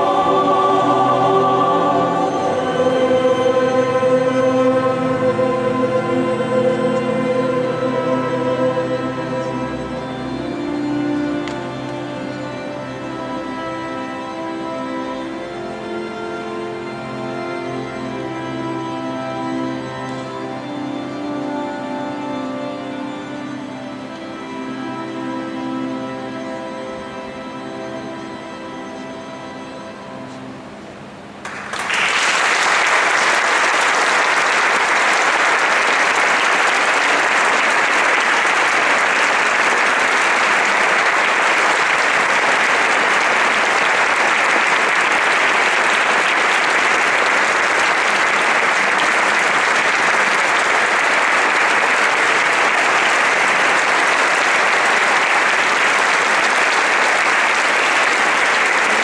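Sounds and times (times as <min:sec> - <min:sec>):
choir and strings chord: 0:00.0 - 0:30.8, 0:33.0 - 0:59.0
audience applause: 0:31.4 - 0:59.0.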